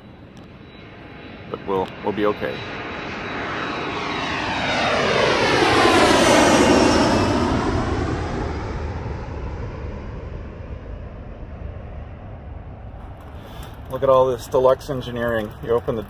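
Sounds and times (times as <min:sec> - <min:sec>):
airplane passing overhead: 0:00.0 - 0:16.0.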